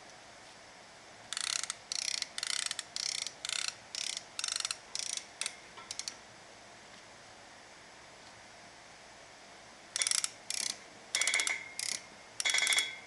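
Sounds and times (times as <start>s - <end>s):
strap tensioner ratchet clicks: 1.3s - 6.2s, 10.0s - 12.9s.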